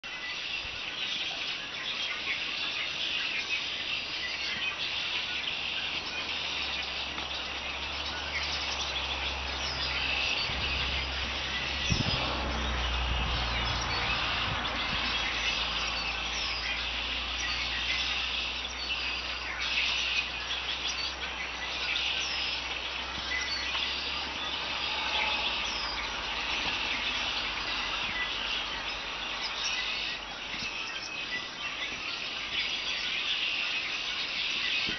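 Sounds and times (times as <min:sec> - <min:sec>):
flock of birds chattering: 0:00.0 - 0:34.9.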